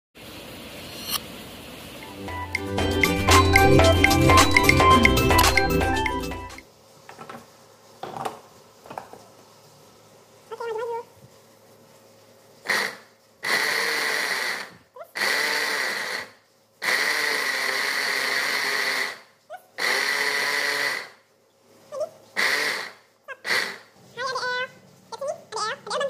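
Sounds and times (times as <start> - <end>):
electric food chopper whirring: 13.4 - 19.2, 19.8 - 21.1.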